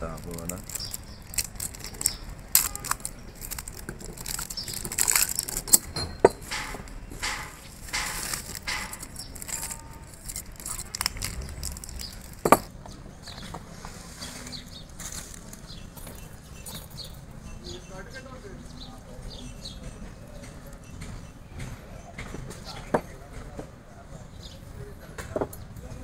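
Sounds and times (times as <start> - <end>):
metal rings clinking and scraping: 0.1 - 12.7, 14.2 - 18.2
small metal clicks: 0.2 - 12.7.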